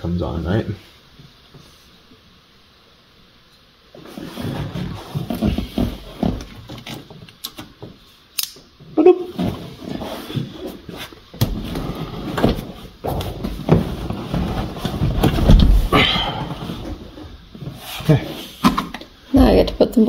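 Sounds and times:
heavy thud: 12.4s - 16.6s.

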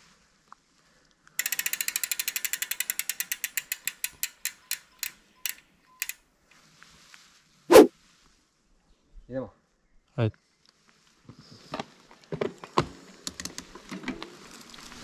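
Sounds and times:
bicycle freehub ratcheting: 1.4s - 6.2s.

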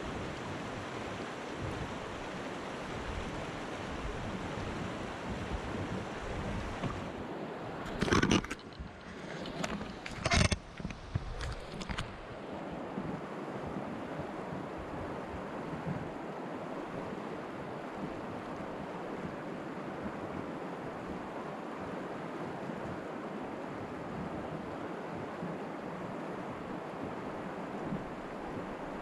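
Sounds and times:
river current rushing: 0.0s - 14.4s, 24.6s - 29.0s
wind buffeting microphone: 2.9s - 7.2s.

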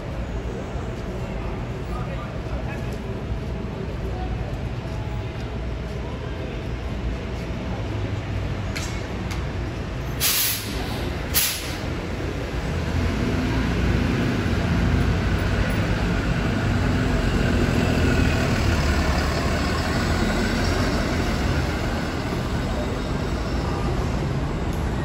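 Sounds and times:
bus drivetrain drone with whine: 0.0s - 25.0s
compressed air hisses: 10.2s - 11.8s.

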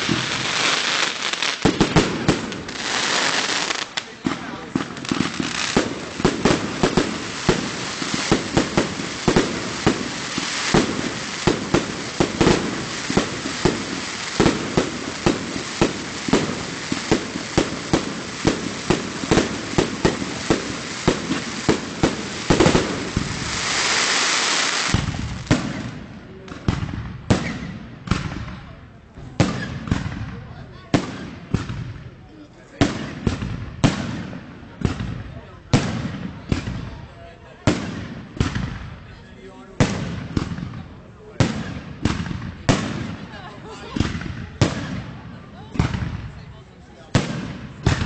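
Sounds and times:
loud firework hiss: 0.0s - 26.0s.

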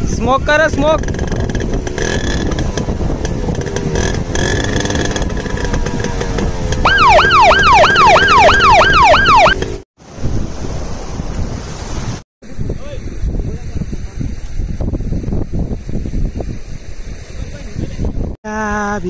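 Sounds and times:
motorcycle engine running: 0.9s - 9.8s
police siren sound effect: 6.8s - 9.7s.

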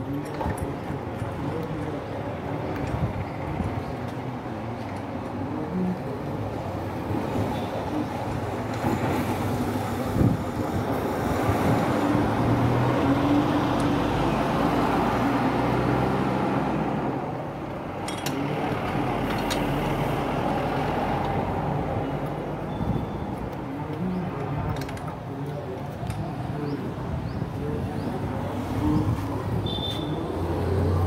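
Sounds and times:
traffic engine noise: 0.0s - 31.0s.

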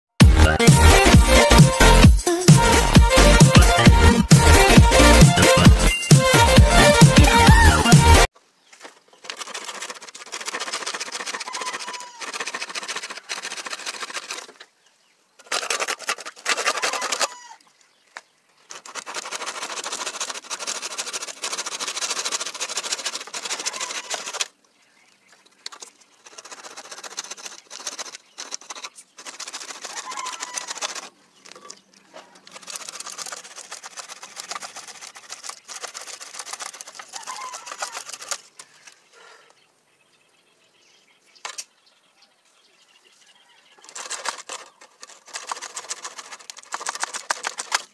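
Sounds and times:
handsaw sawing wood: 0.3s - 8.3s, 9.2s - 14.6s, 15.4s - 17.4s, 18.7s - 24.5s, 25.7s - 31.1s, 32.5s - 38.5s, 43.8s - 47.9s.

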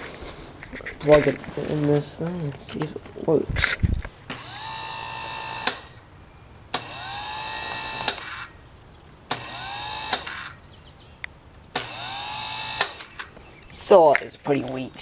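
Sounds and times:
electric starter motor whine: 4.3s - 6.0s, 6.7s - 8.5s, 9.3s - 10.6s, 11.7s - 13.3s
lead snapping off: 6.7s - 8.5s, 9.3s - 10.6s, 11.2s - 13.3s.

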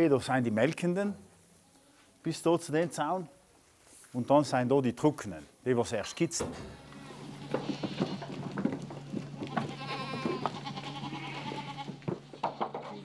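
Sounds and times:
hooves knocking and clattering: 6.4s - 13.0s
goats bleating: 6.7s - 13.0s.

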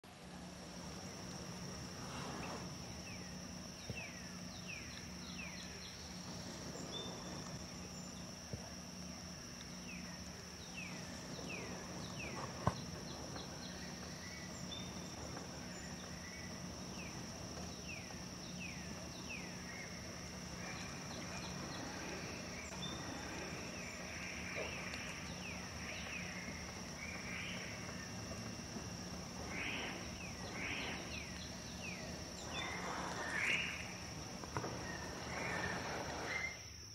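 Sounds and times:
faint low hum: 0.0s - 36.9s
insect drone: 0.0s - 36.9s
songbirds calling: 0.2s - 36.9s.

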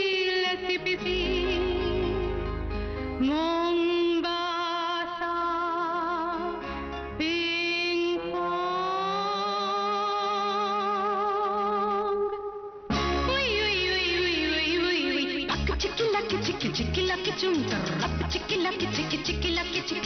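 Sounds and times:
person singing long held notes: 0.8s - 2.5s
backing music with bass line: 1.0s - 3.7s, 12.9s - 14.8s, 15.5s - 20.0s.

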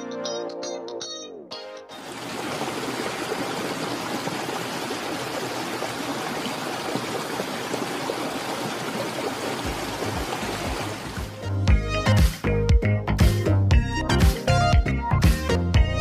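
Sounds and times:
stream rippling over pebbles: 2.0s - 11.4s.

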